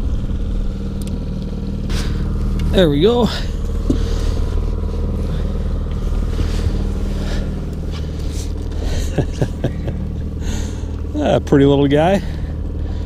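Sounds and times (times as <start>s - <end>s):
outboard motor humming: 0.0s - 13.0s
rustling and scraping: 1.8s - 11.1s.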